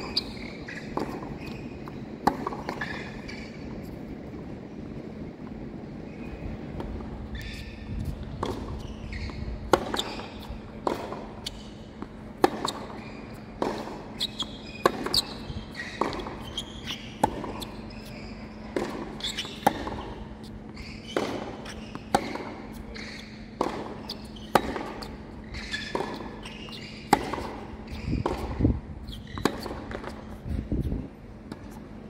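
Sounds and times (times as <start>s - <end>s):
racket hitting tennis ball: 0.0s - 4.0s, 6.8s - 30.9s
tennis shoes squeaking: 0.0s - 32.0s
ball bouncing: 13.6s - 18.1s, 18.7s - 30.2s.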